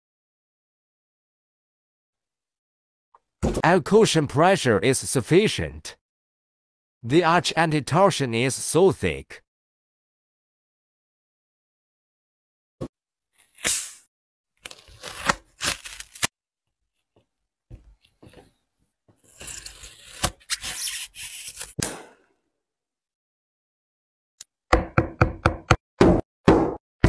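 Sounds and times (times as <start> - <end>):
knife cutting foam insole: 13.4 - 16.3, 17.8 - 22.2.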